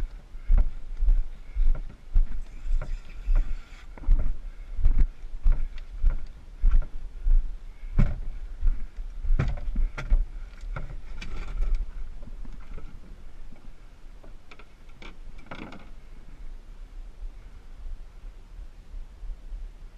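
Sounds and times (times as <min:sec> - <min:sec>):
footsteps on rock and gravel: 0:00.4 - 0:13.1
canoe knocks and thuds: 0:09.3 - 0:11.4.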